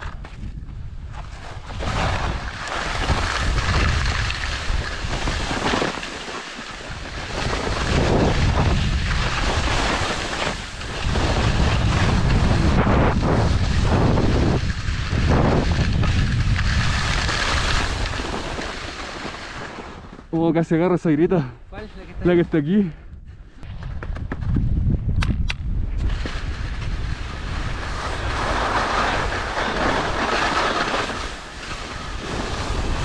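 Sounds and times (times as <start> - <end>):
wind buffeting microphone: 0.0 - 5.6, 6.8 - 19.4, 21.9 - 30.2
skis scraping over snow: 0.0 - 20.5, 26.0 - 33.0.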